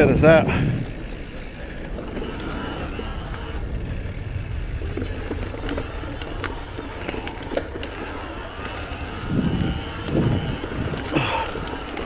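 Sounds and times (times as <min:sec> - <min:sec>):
bike clicks and rattles: 0:00.0 - 0:12.0
tyres rolling over dirt trail: 0:00.0 - 0:12.0
wind on microphone: 0:00.0 - 0:12.0.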